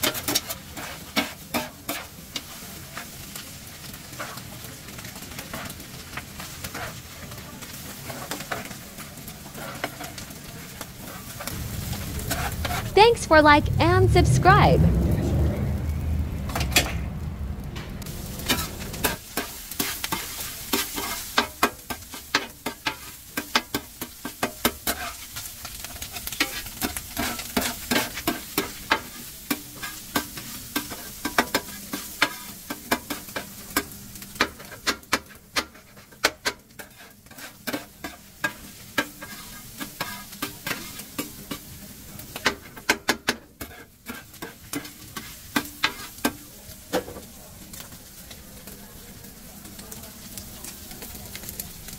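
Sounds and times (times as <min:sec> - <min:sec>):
hot fat sizzling: 0:00.0 - 0:51.9
low rumble: 0:11.5 - 0:19.1.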